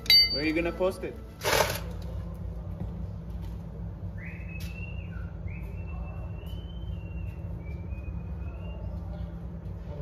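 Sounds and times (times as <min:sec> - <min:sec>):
low hum of shop noise: 0:00.0 - 0:10.0.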